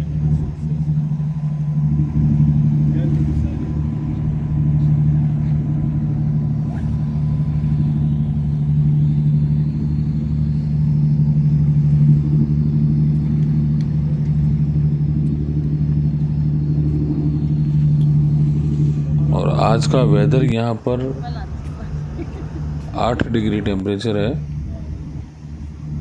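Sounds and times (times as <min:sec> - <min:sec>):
low machine hum: 0:00.0 - 0:26.0.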